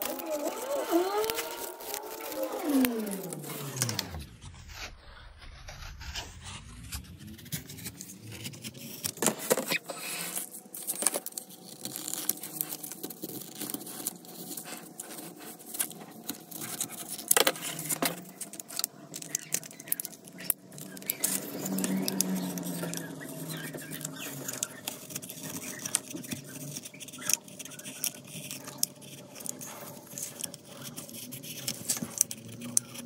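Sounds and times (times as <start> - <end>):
scraping and clicking on hard surface: 0.0 - 4.3, 5.5 - 33.0
small motor running: 0.0 - 4.4, 11.8 - 33.0.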